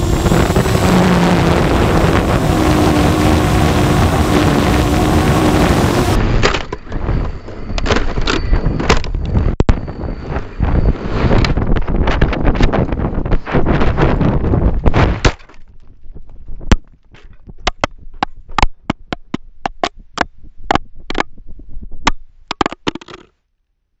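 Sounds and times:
wind rushing over camera: 0.0 - 16.7.

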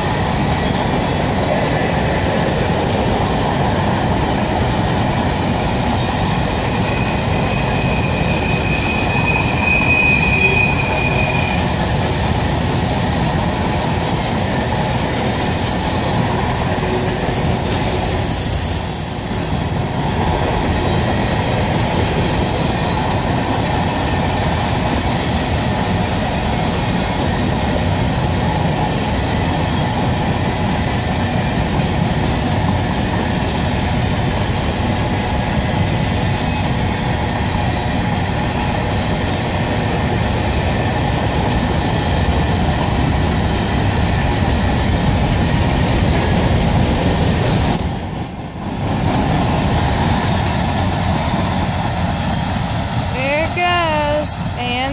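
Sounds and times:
train wheels rumbling on rail: 0.0 - 54.9
high squeal: 6.8 - 11.8.

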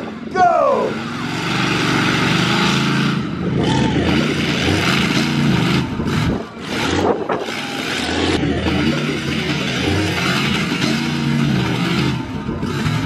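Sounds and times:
monster truck engine revving: 0.0 - 13.0.

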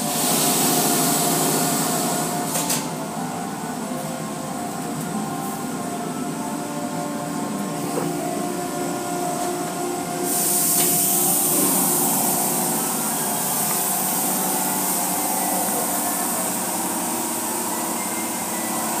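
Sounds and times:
car wash brushes and water spray: 0.0 - 2.6, 10.2 - 17.7
machine hum: 0.0 - 19.0.

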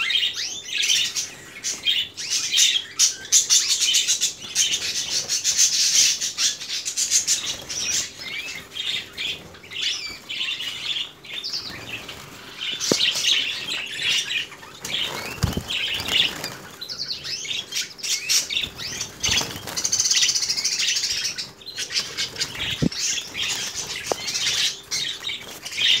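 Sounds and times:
canaries chirping and twittering: 0.0 - 26.0
wings flapping: 11.6 - 16.9, 18.3 - 26.0.

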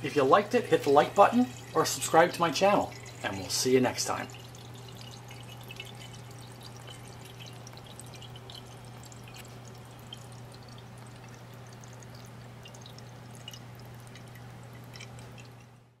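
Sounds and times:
steady low hum: 0.0 - 16.0
water draining in a vortex: 0.2 - 15.7
small splashing dripping ticks: 4.1 - 15.8.

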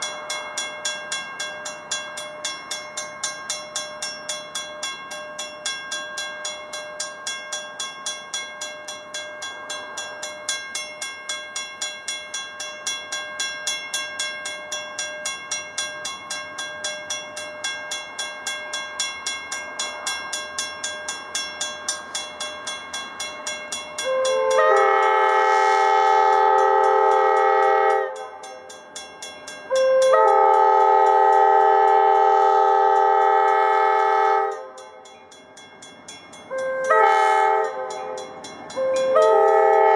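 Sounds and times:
crossing warning bell ringing: 0.0 - 39.9
locomotive air horn blasts: 24.0 - 28.7, 29.7 - 35.0, 36.5 - 39.9.

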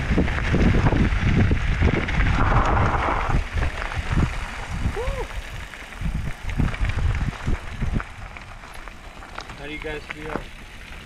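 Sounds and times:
wind buffeting microphone: 0.0 - 8.7
bike tyres crunching over gravel: 0.0 - 11.0.

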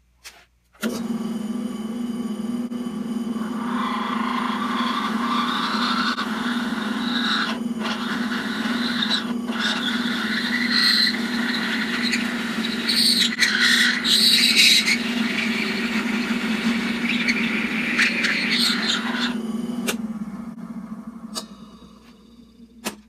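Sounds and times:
drill press motor humming: 0.8 - 22.8
drill bit whining into wood: 3.4 - 19.4.

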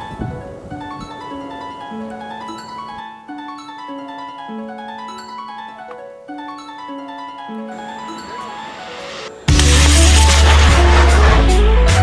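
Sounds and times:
slow melody of ringing notes: 0.0 - 9.5.

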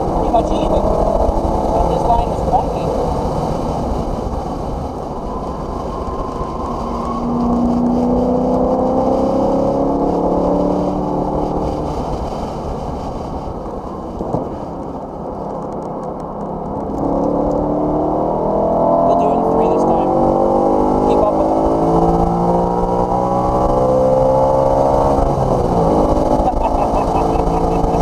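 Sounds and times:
engine revving: 0.0 - 3.5, 5.9 - 12.7, 17.0 - 28.0
road and tyre noise: 0.0 - 28.0.

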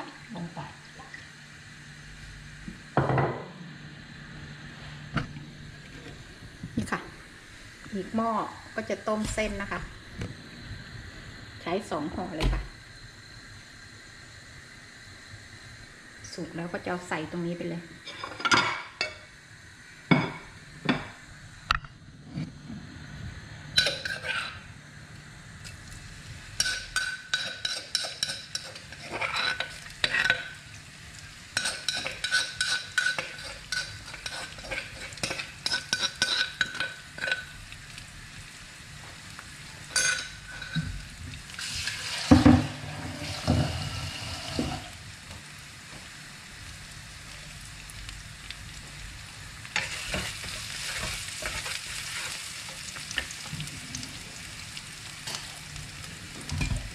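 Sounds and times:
food sizzling in wok: 0.0 - 56.9
spatula scraping and clinking on wok: 23.8 - 24.6, 26.6 - 30.5, 31.6 - 37.5.

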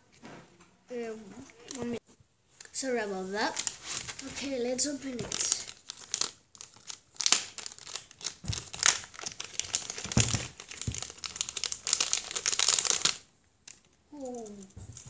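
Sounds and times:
plastic bag crinkling: 3.3 - 15.0.

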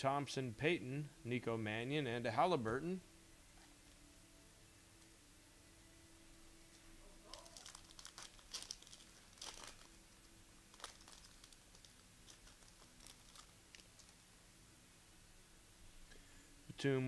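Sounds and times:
cards handled: 7.2 - 10.0
foil wrapper crinkling and tearing: 7.2 - 14.2.

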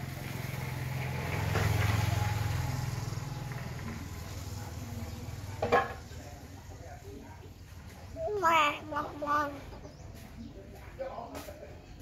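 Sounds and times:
vehicle engine passing by: 0.0 - 8.0.

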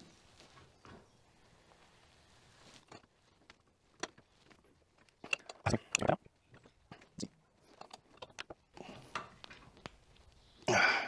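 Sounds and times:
wrenches clicking and scraping: 2.8 - 3.1, 4.0 - 9.4.

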